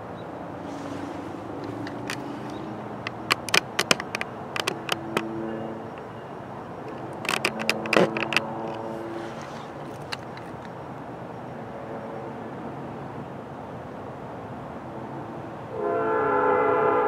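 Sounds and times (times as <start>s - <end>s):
camera handling clicks and scrapes: 0.7s - 6.2s, 6.8s - 10.8s.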